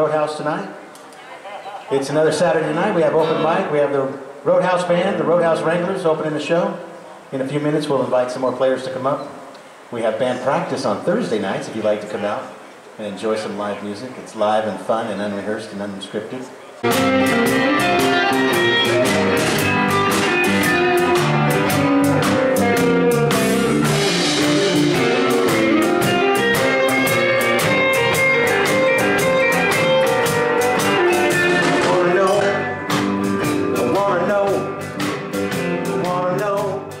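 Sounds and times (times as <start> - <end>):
electric guitar lead: 2.5 - 4.0, 16.8 - 37.0
live band playing upbeat music: 16.8 - 37.0
steady drumbeat: 16.8 - 37.0.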